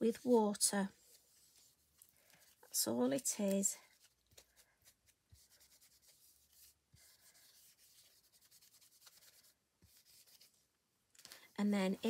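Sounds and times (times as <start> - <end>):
damp cloth rubbing: 0.8 - 2.9, 3.9 - 10.6.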